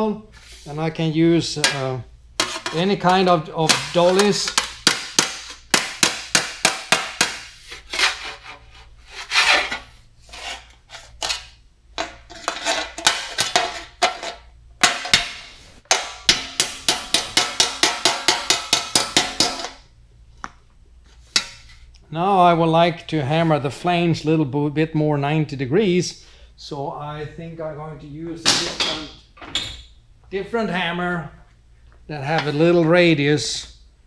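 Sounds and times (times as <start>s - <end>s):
hammer tapping sheet metal: 1.6s - 7.6s, 14.8s - 19.8s.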